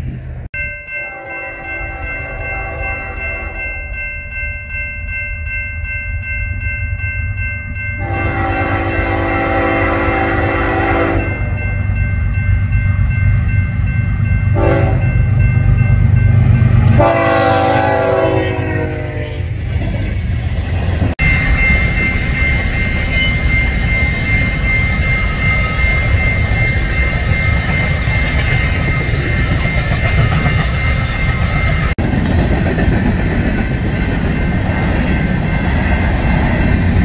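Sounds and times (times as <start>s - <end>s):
locomotive air horn blasts: 1.1s - 3.6s, 8.0s - 11.3s, 14.6s - 15.1s, 16.9s - 19.6s
train wheels rolling: 19.6s - 37.0s.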